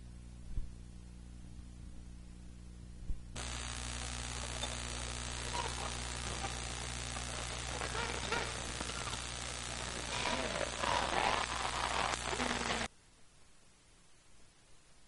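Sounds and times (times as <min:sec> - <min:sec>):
electrical mains hum: 0:00.0 - 0:15.0
even hiss: 0:03.4 - 0:12.9.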